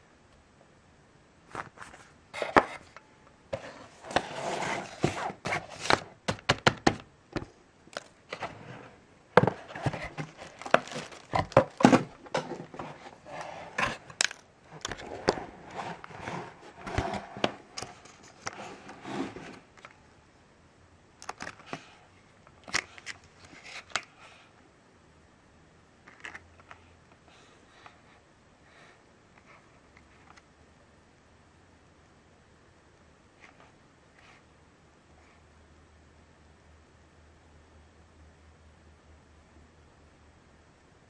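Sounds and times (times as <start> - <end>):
packaging rustling and crinkling: 9.4 - 19.6.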